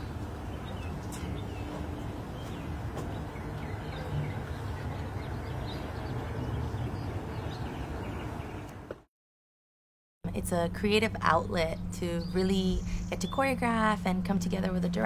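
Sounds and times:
bird chirps: 0.0 - 8.8
low background rumble: 10.3 - 15.0.

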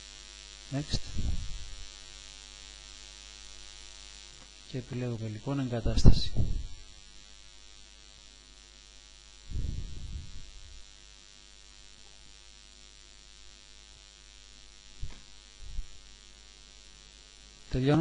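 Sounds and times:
microphone hiss: 0.0 - 18.0
steady electrical hum: 0.0 - 18.0
low muffled rumble: 1.0 - 1.8, 9.5 - 10.9, 15.0 - 16.0.

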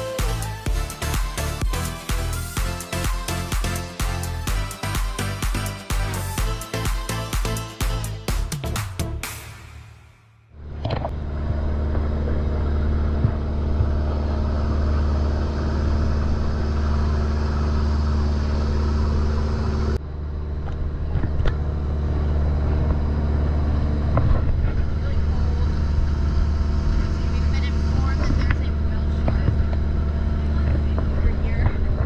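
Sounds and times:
boat engine droning: 10.6 - 32.0.

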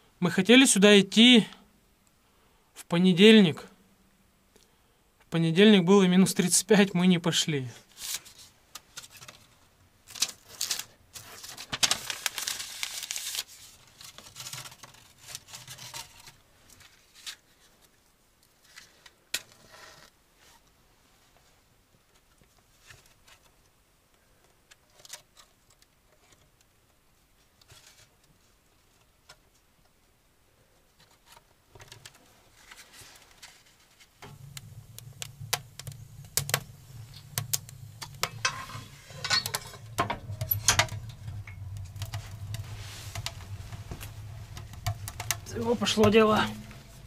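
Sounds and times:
fire crackling in wood stove: 32.0 - 47.0
low fire rumble: 34.2 - 47.0.

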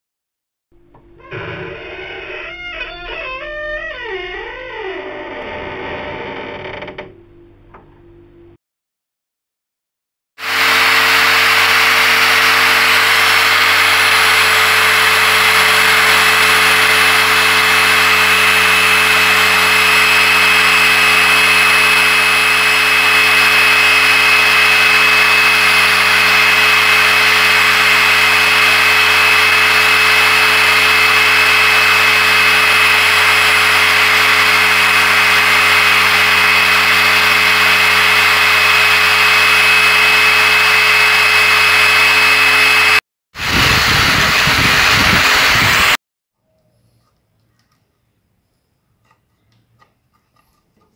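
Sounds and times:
electric drill boring into wood: 10.4 - 46.0.

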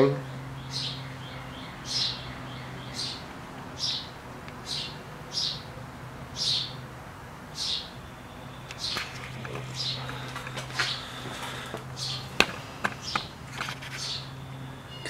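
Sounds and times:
bird chirping: 0.0 - 6.9, 7.5 - 15.0.

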